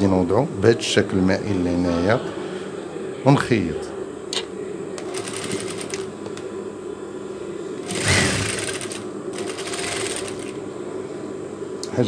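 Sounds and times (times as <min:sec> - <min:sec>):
sewing machine running: 0:05.0 - 0:06.1, 0:07.8 - 0:10.6.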